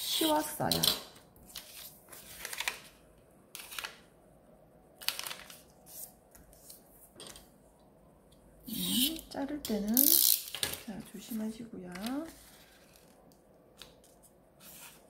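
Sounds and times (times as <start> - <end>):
paper rustling and crinkling: 1.4 - 3.0, 5.0 - 7.4, 11.2 - 15.0.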